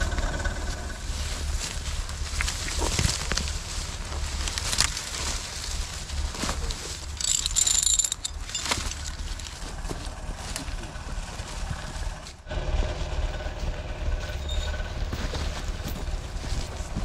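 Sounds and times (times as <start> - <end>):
dry leaves crunching underfoot: 0.0 - 17.0
steady low rumble: 0.0 - 17.0
chain clinking and rattling: 7.0 - 9.7, 14.2 - 17.0.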